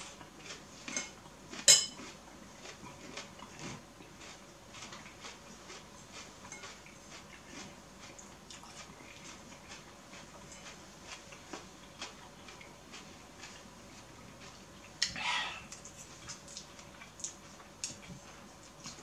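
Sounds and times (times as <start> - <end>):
chewing and mouth smacks: 0.1 - 19.0.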